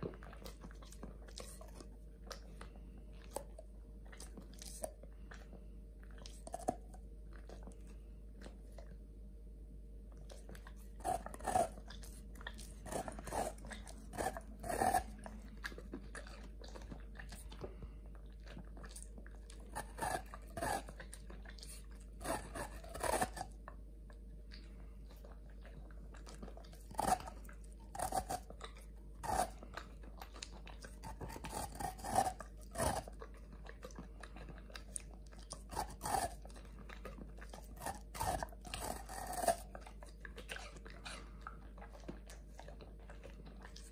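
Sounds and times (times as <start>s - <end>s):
dog licking: 0.0s - 9.0s, 10.1s - 43.9s
dog crunching ice pop: 10.2s - 23.7s, 25.5s - 43.9s.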